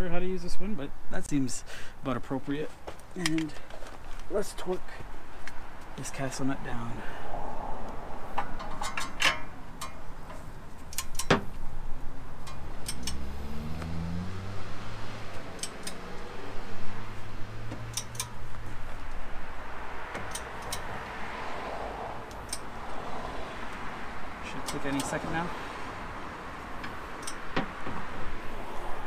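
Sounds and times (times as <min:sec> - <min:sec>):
vehicle engine humming: 0:02.8 - 0:29.0.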